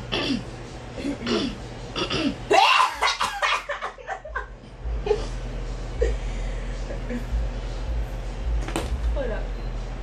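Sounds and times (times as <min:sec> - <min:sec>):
girls laughing: 0:02.5 - 0:05.4.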